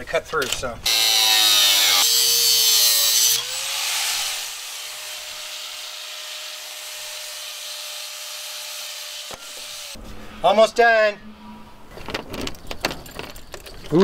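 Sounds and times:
angle grinder cutting metal: 0:00.9 - 0:10.0.

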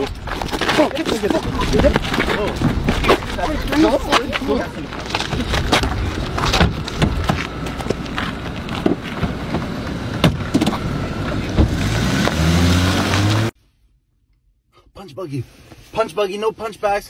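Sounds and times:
car engine revving: 0:07.5 - 0:13.6
car doors being shut: 0:08.8 - 0:10.9.

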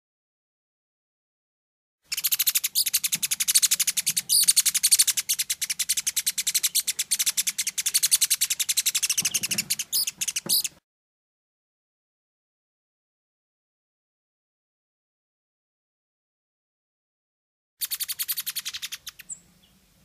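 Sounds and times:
fledgling bird begging chirps: 0:02.1 - 0:10.8, 0:17.8 - 0:19.8.

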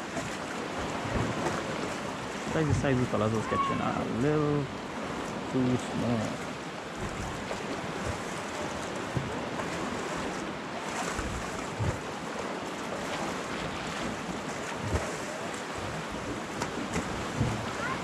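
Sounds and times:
water lapping against rocks: 0:00.0 - 0:18.0
wind buffeting microphone: 0:13.9 - 0:18.0.

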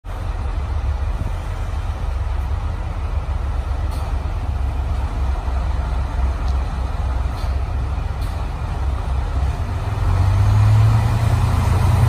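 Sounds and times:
diesel railcar idling: 0:00.0 - 0:12.0.

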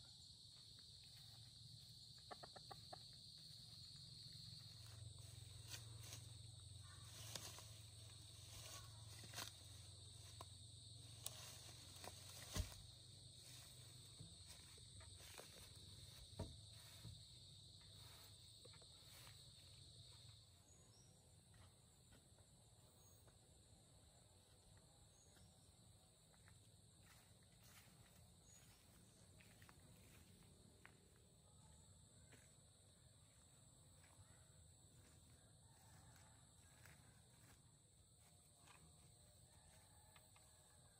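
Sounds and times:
high insect drone: 0:00.0 - 0:40.9
bamboo pole knocks and rustles: 0:11.2 - 0:12.9.

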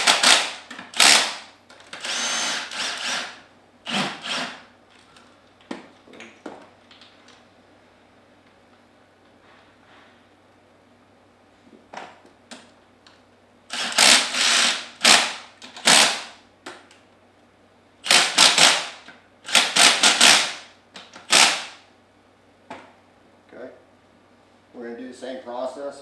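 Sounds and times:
impact wrench hammering: 0:00.0 - 0:04.6.

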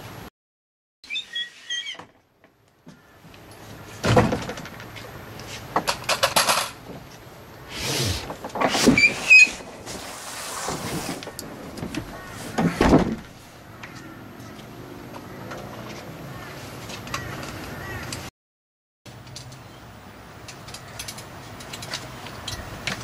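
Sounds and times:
short squeaks: 0:01.0 - 0:02.2, 0:07.8 - 0:11.4
scraping and rustling: 0:07.7 - 0:14.0.

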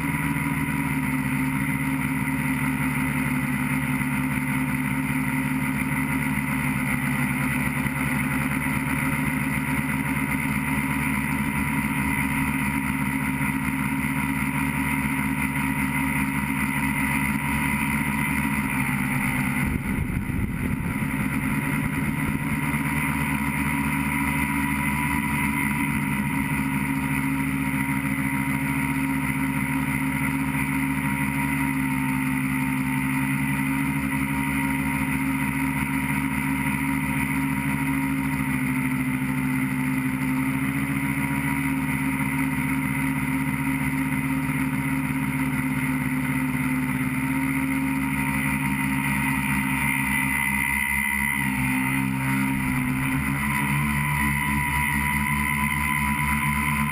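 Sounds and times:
drone motors and propellers: 0:00.0 - 0:56.9
low rumble: 0:19.2 - 0:22.6.

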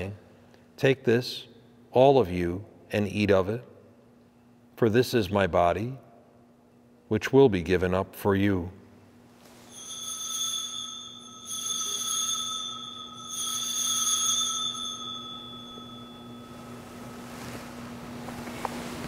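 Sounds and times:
altar bell ringing: 0:09.6 - 0:17.9.

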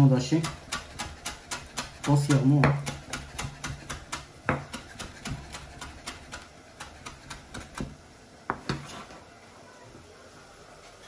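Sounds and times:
knife chopping on cutting board: 0:00.4 - 0:08.9.

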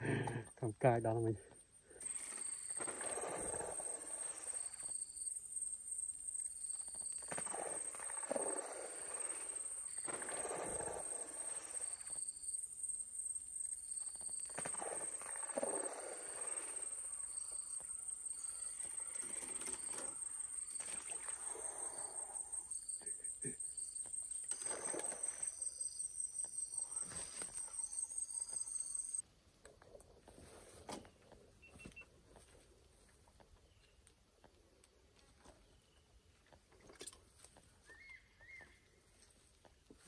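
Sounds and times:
fish splashing at water surface: 0:02.0 - 0:04.9, 0:07.2 - 0:12.2, 0:14.4 - 0:17.6
high-pitched insect chirring: 0:02.0 - 0:08.0, 0:11.2 - 0:21.3, 0:25.3 - 0:29.2.

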